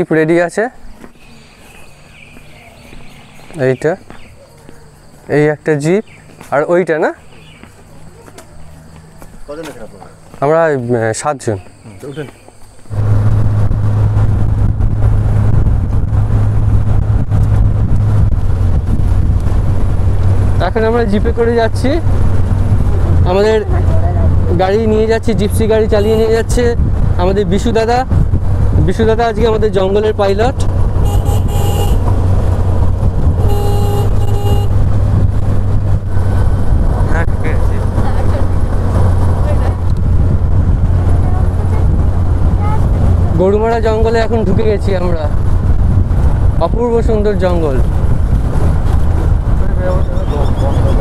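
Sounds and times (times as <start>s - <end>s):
road noise: 0.0s - 51.0s
jeep engine drone: 12.9s - 51.0s
short horn beeps: 26.0s - 26.5s, 31.0s - 32.1s, 33.4s - 34.8s.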